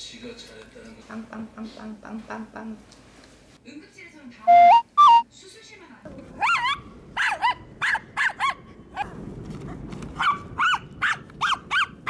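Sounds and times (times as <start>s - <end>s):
small dog yipping: 6.4s - 8.6s, 10.2s - 12.0s.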